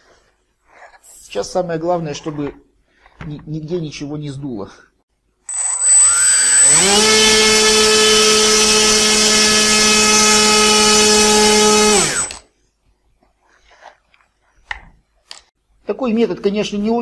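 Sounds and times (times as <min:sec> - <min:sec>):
electric model airplane motor: 0:05.5 - 0:12.4.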